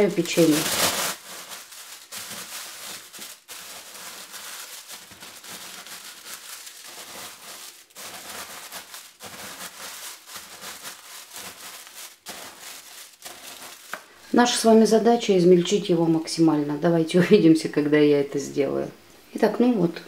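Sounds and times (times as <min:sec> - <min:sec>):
cookies crunching: 0:00.0 - 0:14.2
plastic bag crinkling: 0:00.0 - 0:15.0.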